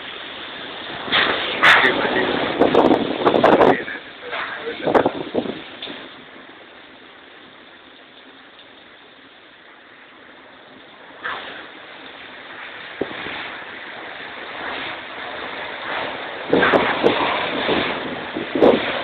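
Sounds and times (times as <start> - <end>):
wind gusts buffeting microphone: 0.3 - 7.6, 10.6 - 19.0
strong wind rushing: 0.7 - 6.4, 12.8 - 19.0.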